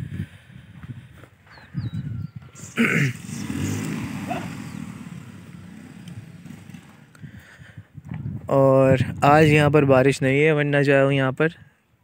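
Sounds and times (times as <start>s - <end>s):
vehicle engine running: 2.6s - 7.6s.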